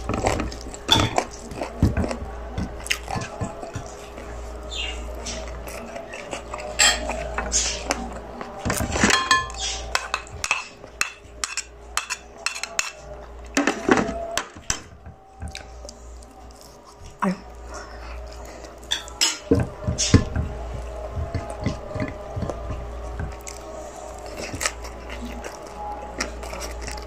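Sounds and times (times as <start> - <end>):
metal spoon clinking on bowl: 8.9 - 13.0.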